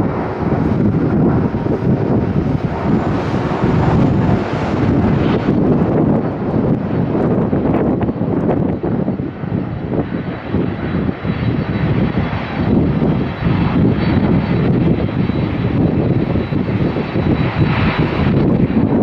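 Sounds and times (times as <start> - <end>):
jet engines rumbling: 0.0 - 19.0
wind buffeting microphone: 0.0 - 19.0.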